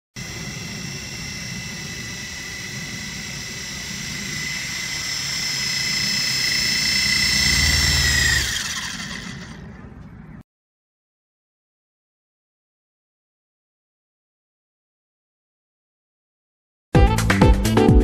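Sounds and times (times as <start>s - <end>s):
drone rotors whining: 0.2s - 10.4s.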